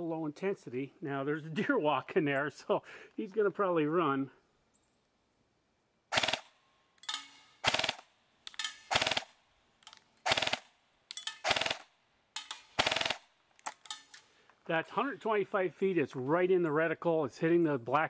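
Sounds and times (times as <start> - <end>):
airsoft gun firing bursts: 6.1 - 6.6, 7.5 - 8.1, 8.8 - 9.4, 10.2 - 10.7, 11.4 - 11.9, 12.5 - 13.3.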